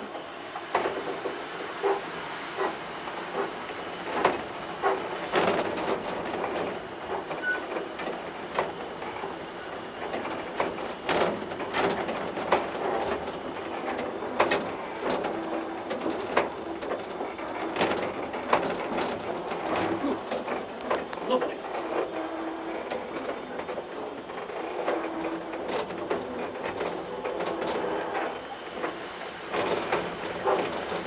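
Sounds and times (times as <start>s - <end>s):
steam hissing: 0.0s - 17.3s, 26.3s - 31.0s
locomotive clanks and knocks: 0.0s - 31.0s.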